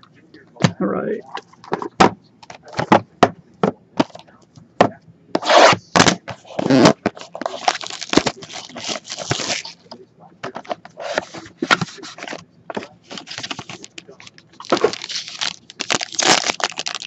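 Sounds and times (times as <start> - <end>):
rustling and scraping: 5.4 - 16.6.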